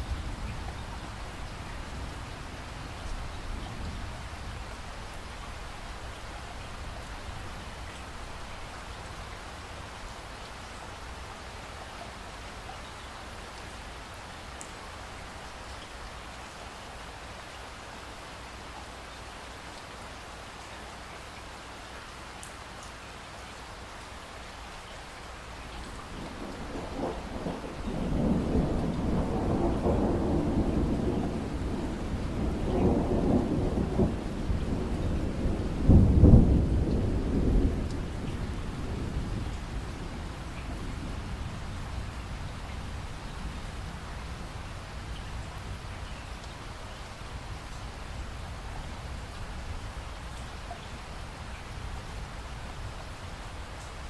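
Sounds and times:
rain falling: 0:00.0 - 0:54.0
thunder rumbling: 0:26.0 - 0:44.9.

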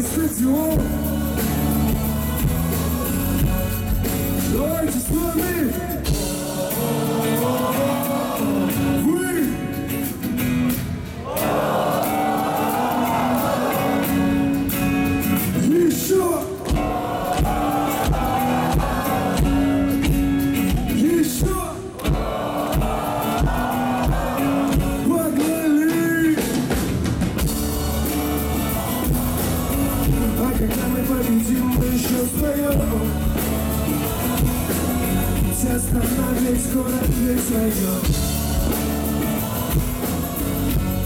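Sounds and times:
person singing: 0:27.5 - 0:41.0.

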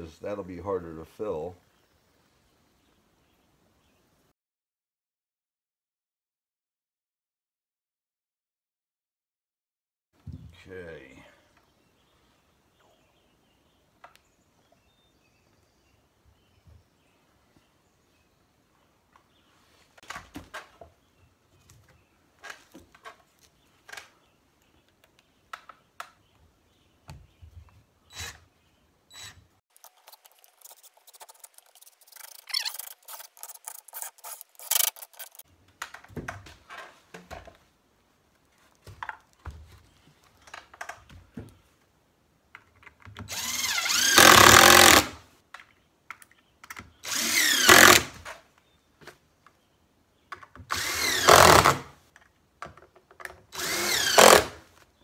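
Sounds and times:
impact driver driving screws: 0:29.1 - 0:35.4, 0:43.2 - 0:45.2, 0:47.0 - 0:48.2, 0:50.7 - 0:51.8, 0:53.6 - 0:54.6
wood knocking and clattering: 0:35.7 - 0:37.6.

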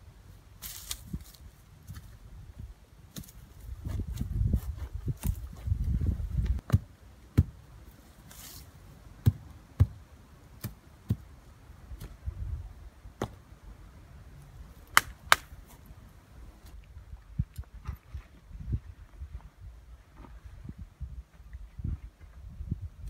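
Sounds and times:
boots scuffing dry soil: 0:00.6 - 0:02.2, 0:07.4 - 0:10.0.

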